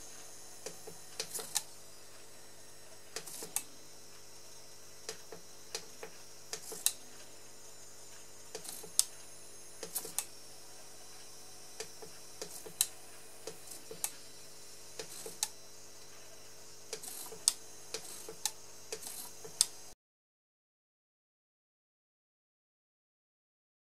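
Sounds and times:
servo whir: 11.0s - 16.1s, 16.9s - 19.8s.

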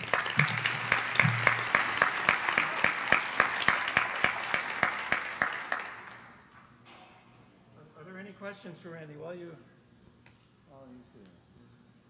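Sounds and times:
audience applauding: 0.0s - 6.5s
close hand clapping: 0.0s - 6.7s.

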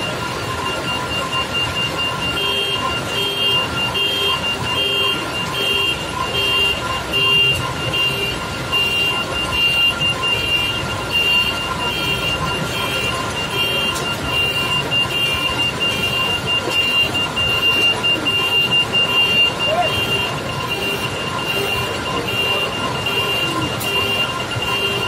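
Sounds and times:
electronic warning beeper: 0.0s - 25.0s
engine running: 0.0s - 25.0s.

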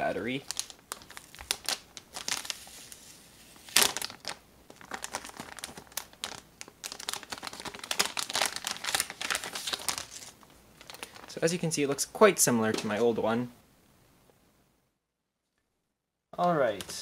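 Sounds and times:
plastic bag crinkling: 0.3s - 11.5s.

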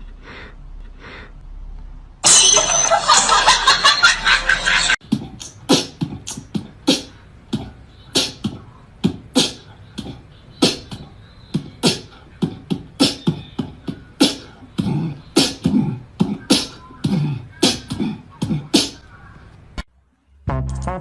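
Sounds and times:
beatbox thumps and clicks: 5.0s - 19.0s.

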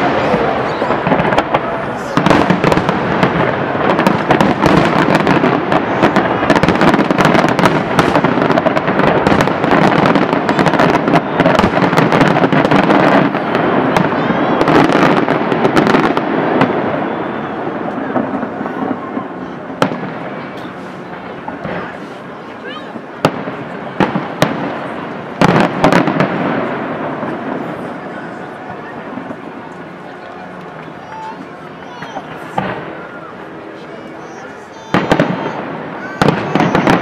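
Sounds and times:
sharp firework bang: 0.0s - 17.1s
fireworks bursting and crackling: 0.0s - 37.0s.

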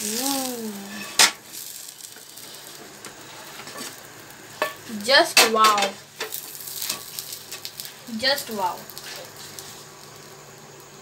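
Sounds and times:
person exclaiming: 0.0s - 1.0s
faint sizzle from pan: 0.0s - 11.0s
spatula scraping frying pan: 0.2s - 7.7s.

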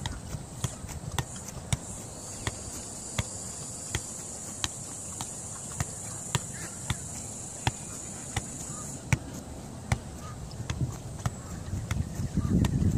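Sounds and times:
football thudding off foot: 0.0s - 12.9s
high insect drone: 1.2s - 9.1s.

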